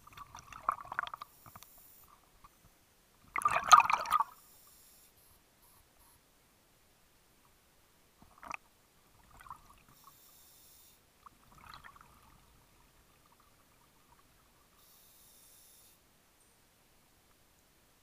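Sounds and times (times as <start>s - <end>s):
exhaled bubbles gurgling: 0.0s - 1.2s, 3.3s - 4.3s, 8.3s - 9.9s, 11.3s - 14.5s.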